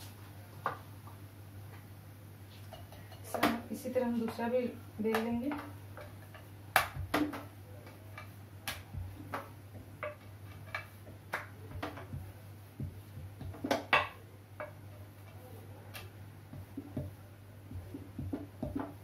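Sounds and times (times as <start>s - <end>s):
low steady hum: 0.0s - 19.0s
rolling pin knocking on metal: 16.5s - 19.0s.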